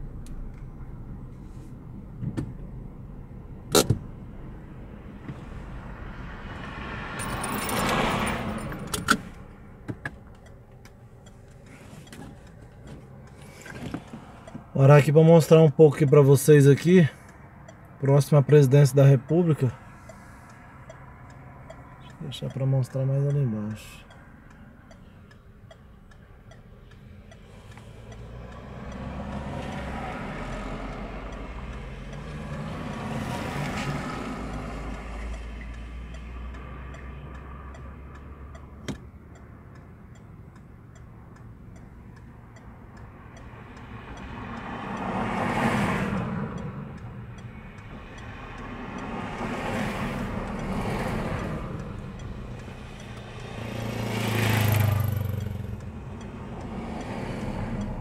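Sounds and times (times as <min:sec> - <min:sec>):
cars passing: 0:00.0 - 0:58.0
sharp click: 0:03.7 - 0:04.0.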